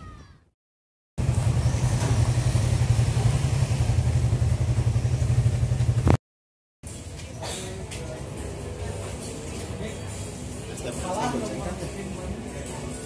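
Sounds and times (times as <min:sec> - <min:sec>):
motorcycle engine rumbling: 0:01.2 - 0:06.2.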